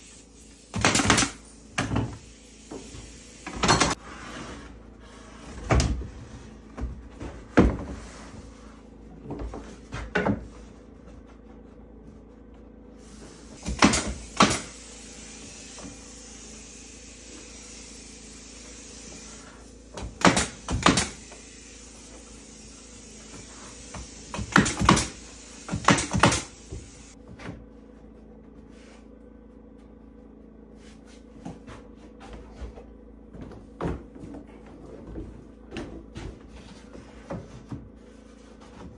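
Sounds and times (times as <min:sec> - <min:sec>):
nail gun firing: 0:00.7 - 0:01.4, 0:13.6 - 0:14.8, 0:20.0 - 0:21.3, 0:24.2 - 0:26.6.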